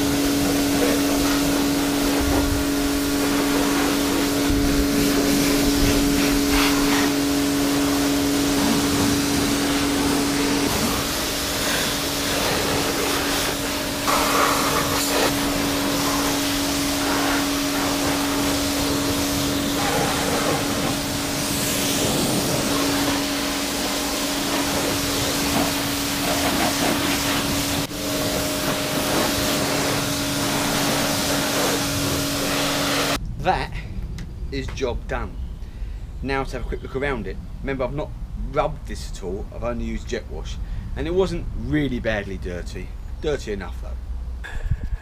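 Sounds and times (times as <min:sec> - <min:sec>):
pressure washer motor hum: 0:00.0 - 0:33.2
water jet hissing: 0:00.0 - 0:33.2.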